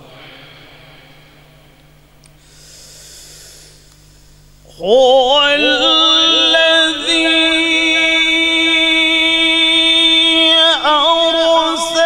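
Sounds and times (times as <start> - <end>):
man reciting melodically: 4.7 - 12.0.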